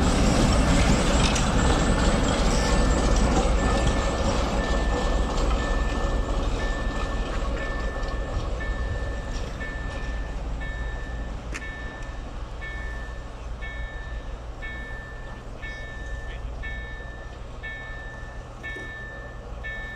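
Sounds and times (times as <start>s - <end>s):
diesel locomotive engine rumbling: 0.0s - 19.9s
level crossing warning beeps: 0.7s - 19.9s.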